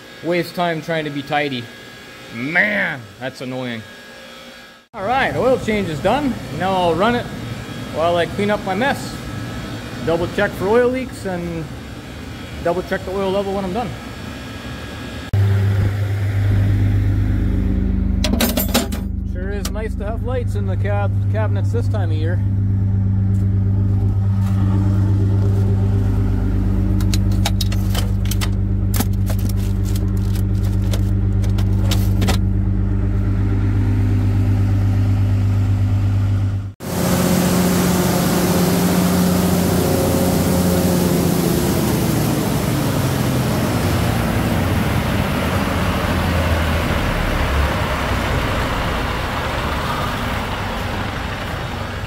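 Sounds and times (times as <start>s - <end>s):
radiator fan rushing: 0.0s - 52.0s
diesel engine running: 5.0s - 52.0s.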